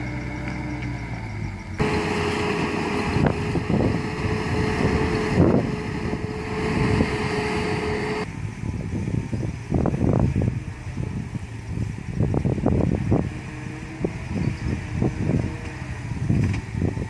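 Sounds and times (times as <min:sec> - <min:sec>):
steady whine: 0:00.0 - 0:08.3
truck diesel engine rumbling: 0:00.0 - 0:17.0
wind buffeting microphone: 0:01.8 - 0:17.0.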